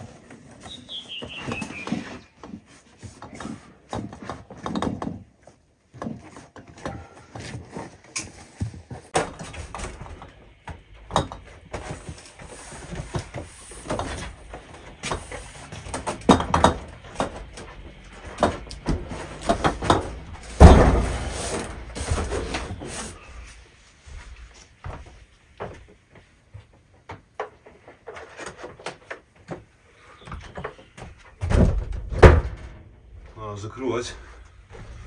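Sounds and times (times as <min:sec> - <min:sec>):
footsteps: 0:17.0 - 0:26.9, 0:34.1 - 0:35.0.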